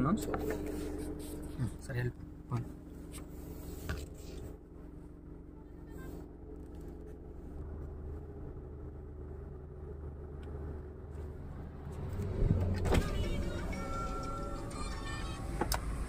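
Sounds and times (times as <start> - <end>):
car engine and road rumble: 0.0 - 16.0
music: 13.0 - 15.6.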